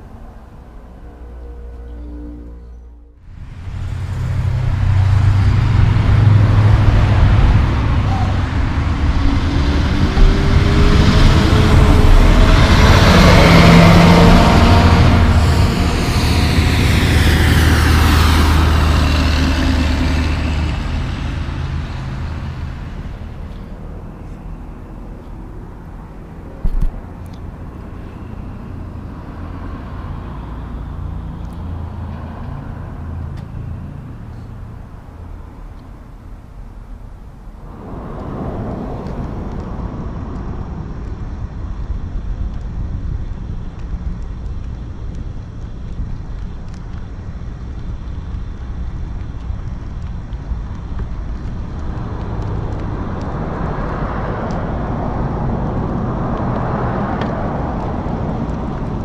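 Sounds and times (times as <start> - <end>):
heavy trucks driving past: 0.0 - 42.4
falling whine: 36.8 - 42.7.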